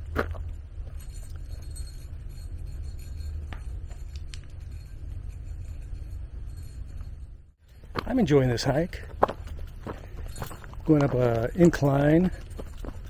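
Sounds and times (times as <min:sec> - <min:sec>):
footsteps on gravel: 0:00.0 - 0:01.2, 0:07.8 - 0:13.0.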